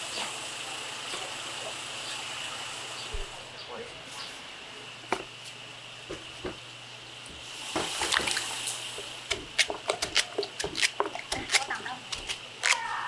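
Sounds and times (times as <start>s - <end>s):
water splashing into plastic basin: 7.8s - 8.7s.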